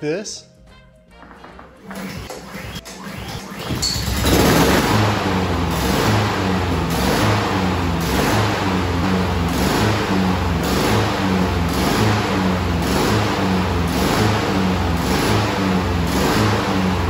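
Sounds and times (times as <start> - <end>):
lawn mower engine surging idle: 3.9 - 17.0.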